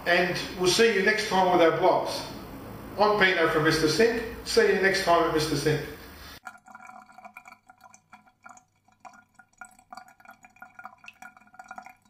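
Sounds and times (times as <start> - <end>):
water drops plinking: 6.4 - 12.0.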